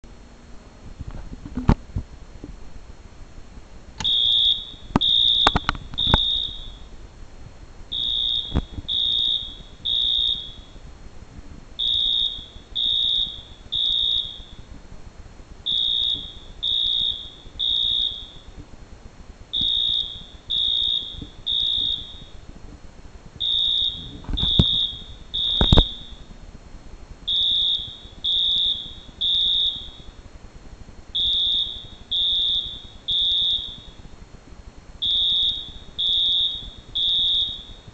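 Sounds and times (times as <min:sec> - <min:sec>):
fire alarm horn blasts: 0:04.0 - 0:06.9, 0:07.9 - 0:10.8, 0:11.8 - 0:14.7, 0:15.6 - 0:18.6, 0:19.5 - 0:22.4, 0:23.4 - 0:26.3, 0:27.3 - 0:30.2, 0:31.1 - 0:34.1, 0:35.0 - 0:37.9.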